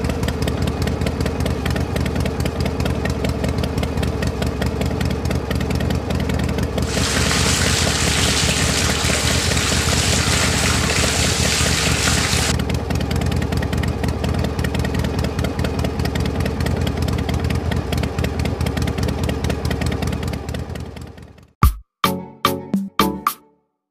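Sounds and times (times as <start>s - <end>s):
harsh hiss: 6.8s - 12.5s
small electric motor running: 6.8s - 12.6s.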